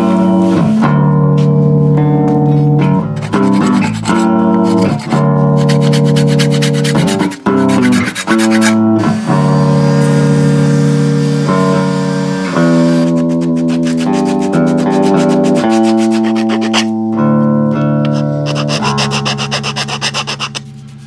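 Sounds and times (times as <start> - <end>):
plucked bass guitar tune: 0.0 - 19.6
orbital sander on wood: 3.2 - 16.8.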